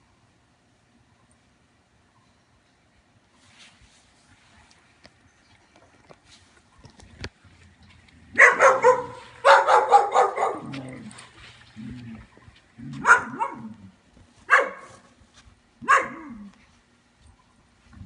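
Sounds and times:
puppies barking: 0:08.2 - 0:13.8, 0:14.5 - 0:14.9, 0:15.8 - 0:16.4.

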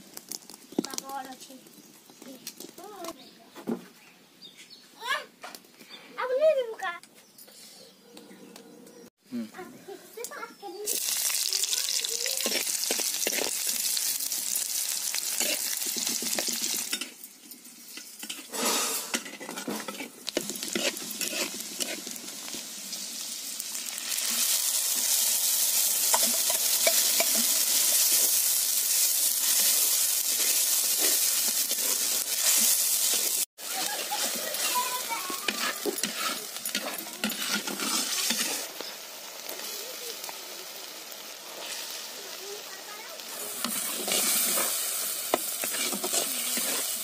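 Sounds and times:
food sizzling in hot oil: 0:00.0 - 0:02.7, 0:10.6 - 0:47.0
metal spatula scraping pot: 0:12.3 - 0:13.6, 0:15.3 - 0:17.2, 0:17.9 - 0:22.2, 0:26.1 - 0:28.4, 0:29.4 - 0:38.8, 0:43.5 - 0:47.0.

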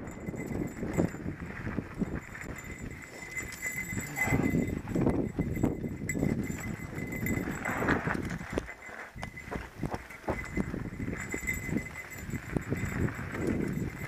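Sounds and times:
tyres crunching on loose dirt: 0:00.2 - 0:14.0
bike clattering over bumps: 0:05.0 - 0:14.0.

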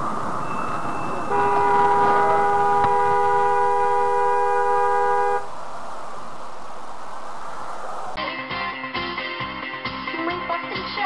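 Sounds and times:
road noise inside car: 0:00.0 - 0:08.2
car horn blast: 0:01.3 - 0:05.5.

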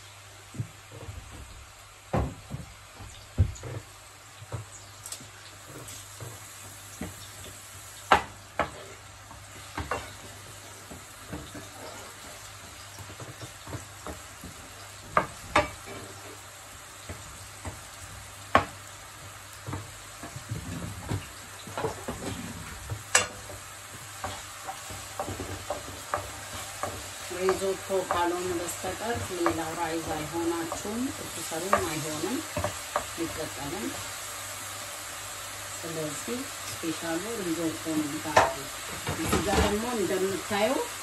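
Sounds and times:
onion sizzling in oil: 0:00.0 - 0:41.0
wooden spoon knocking pan: 0:22.9 - 0:33.4.

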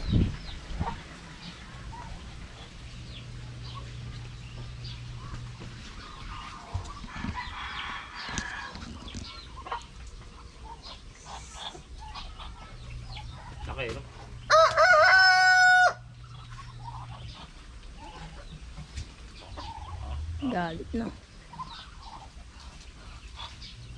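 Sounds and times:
poultry clucking: 0:00.0 - 0:23.9
rooster crowing: 0:14.4 - 0:16.1.

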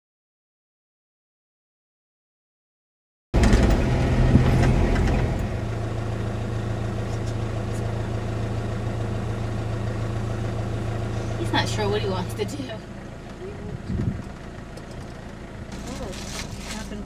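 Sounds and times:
vehicle engine humming: 0:03.4 - 0:17.0.

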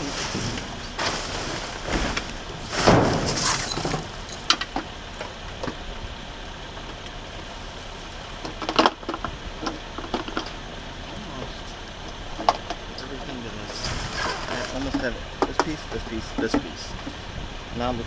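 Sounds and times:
paper and plastic rustling: 0:00.0 - 0:04.1
clattering: 0:00.0 - 0:05.8.

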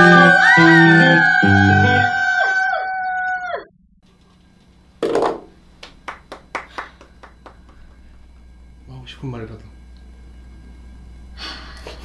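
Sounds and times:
music: 0:00.0 - 0:02.1.

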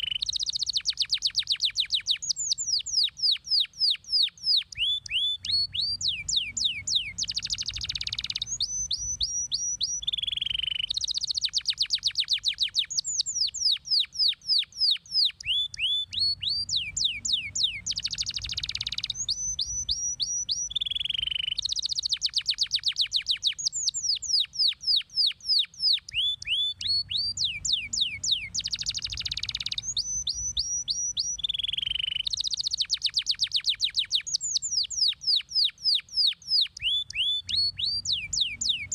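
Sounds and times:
canary singing: 0:00.0 - 0:38.9.

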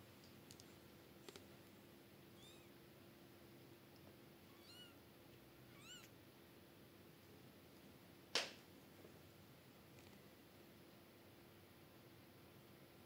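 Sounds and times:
small clicks: 0:00.2 - 0:01.5
kittens mewing: 0:02.4 - 0:02.7, 0:04.5 - 0:05.0, 0:05.7 - 0:06.1.

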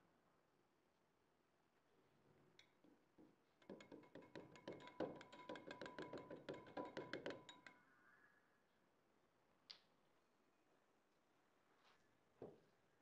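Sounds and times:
whisk clinking against glass: 0:03.7 - 0:07.8.

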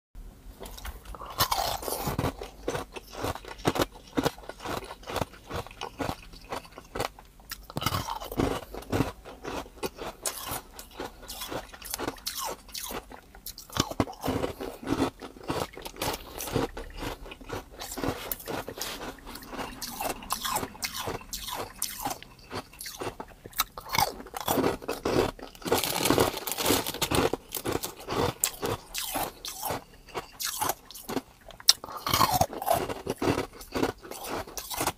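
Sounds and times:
ice cubes crunching when chewed: 0:00.6 - 0:34.9.

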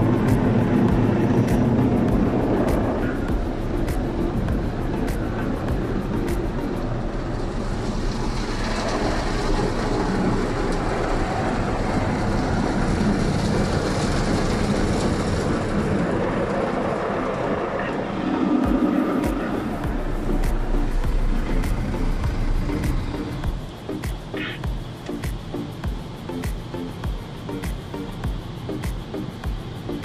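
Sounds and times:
car wash water rushing: 0:06.8 - 0:15.8.

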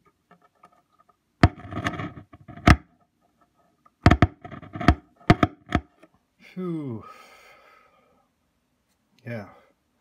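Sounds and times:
loudspeaker popping and crackling: 0:04.0 - 0:05.8.

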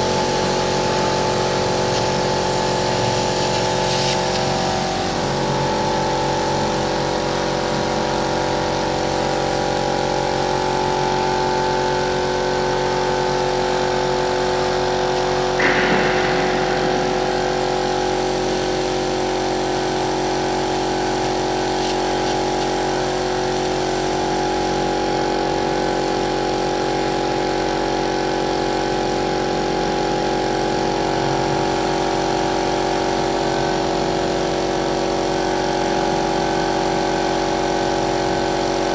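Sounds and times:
paint spray gun hissing: 0:00.0 - 0:09.3, 0:19.8 - 0:24.7
metal clank: 0:15.6 - 0:19.1.

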